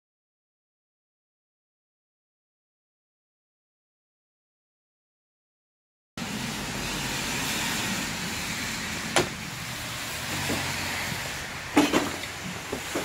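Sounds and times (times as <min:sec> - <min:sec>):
sharp knocks: 0:09.1 - 0:09.4.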